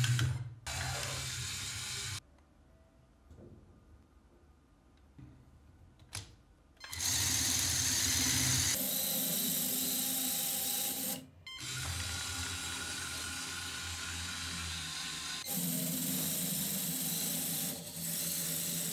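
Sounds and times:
small electric motors whirring: 0.7s - 2.2s, 6.9s - 18.9s.

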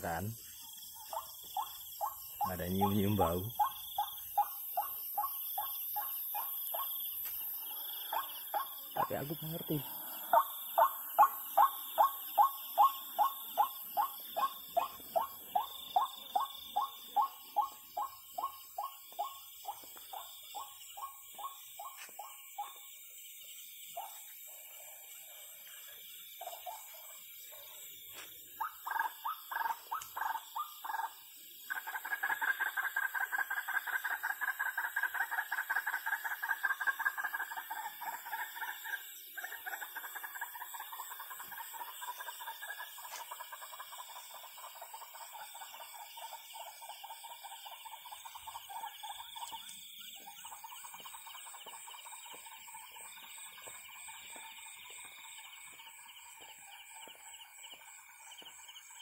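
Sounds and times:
insects chirping: 0.0s - 59.0s
animal trilling calls: 1.0s - 6.9s.

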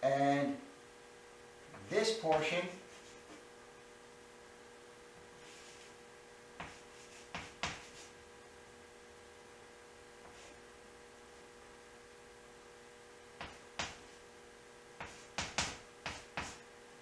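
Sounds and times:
steady electrical hum: 0.0s - 17.0s
chalk tapping and scraping on board: 6.6s - 8.2s, 10.2s - 10.6s, 13.4s - 14.1s, 15.0s - 16.6s.

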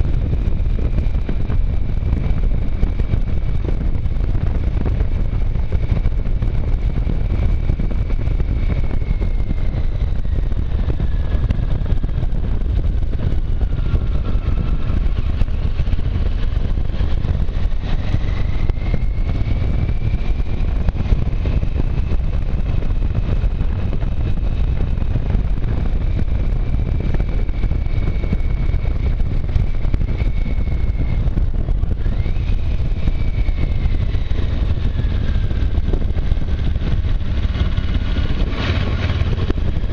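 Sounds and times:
motorcycle engine: 0.0s - 39.9s
wind rush: 0.0s - 39.9s.

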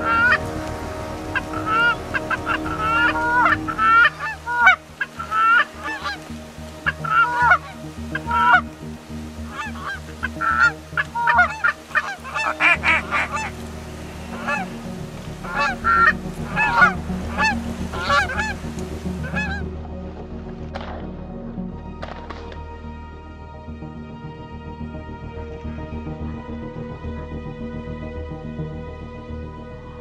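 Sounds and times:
geese honking: 0.0s - 19.9s.

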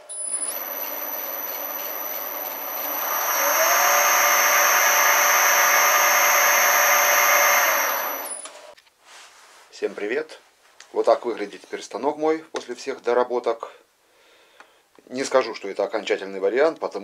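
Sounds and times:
lathe spindle whining: 0.0s - 8.6s.

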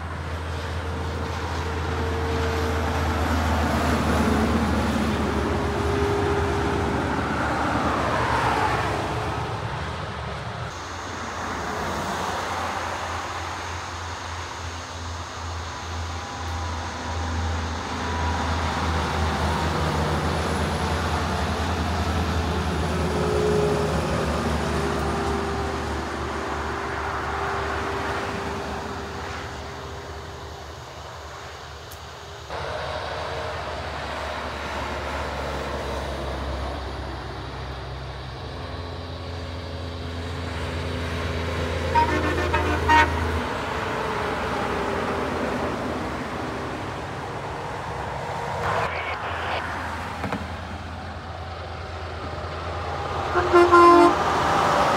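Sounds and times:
heavy trucks passing: 0.0s - 54.9s
truck horn toots: 41.9s - 43.5s, 53.2s - 54.6s.

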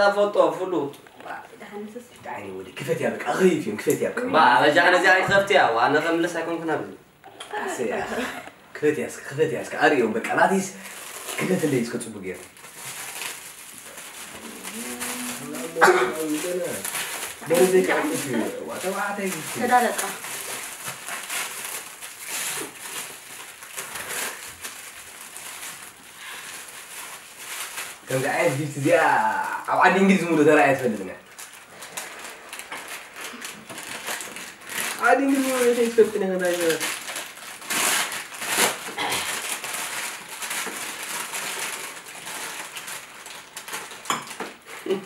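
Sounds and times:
plastic bag rustling: 9.0s - 45.0s.

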